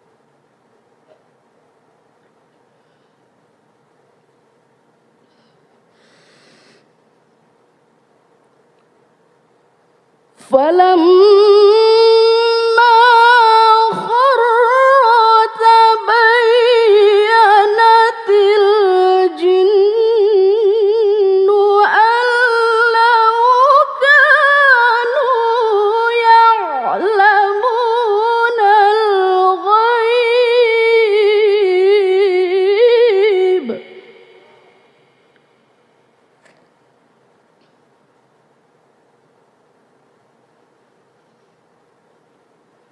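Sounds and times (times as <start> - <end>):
woman reciting melodically: 10.4 - 34.9.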